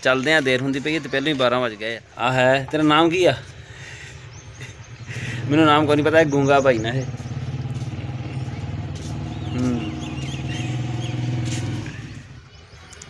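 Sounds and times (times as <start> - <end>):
motorcycle engine running: 4.2 - 12.5.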